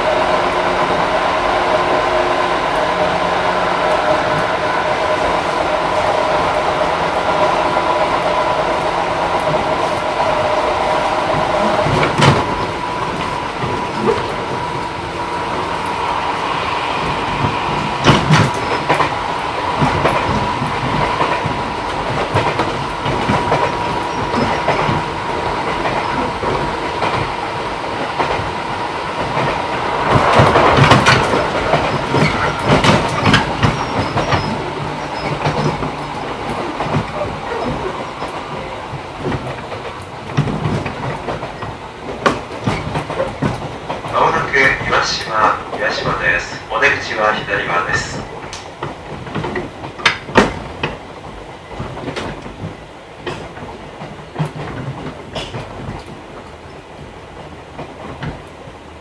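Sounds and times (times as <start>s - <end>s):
train motor hum: 0.0s - 42.6s
wheels rumbling on rails: 0.0s - 59.0s
wheels clacking over rail joints: 18.0s - 45.5s, 48.2s - 59.0s.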